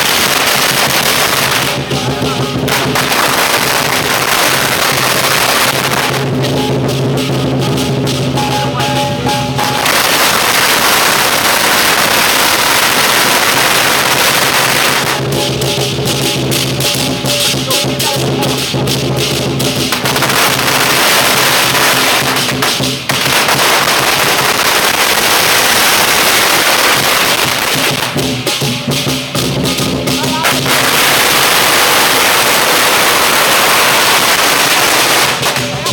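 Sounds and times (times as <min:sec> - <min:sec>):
sharp firecracker pops: 0:00.0 - 0:06.6, 0:09.6 - 0:15.5, 0:19.6 - 0:28.7, 0:30.4 - 0:35.9
drum and cymbals playing: 0:00.0 - 0:35.9
firecrackers crackling: 0:00.0 - 0:35.9.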